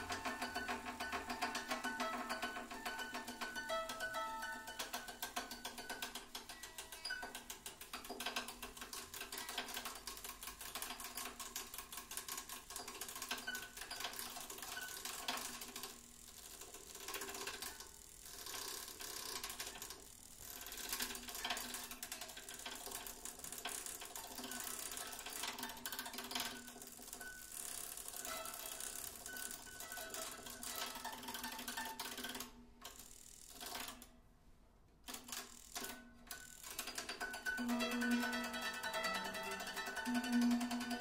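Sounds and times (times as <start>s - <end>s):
rapid rattling clatter on guitar: 36.7s - 41.0s
ringing guitar string tones: 37.5s - 41.0s.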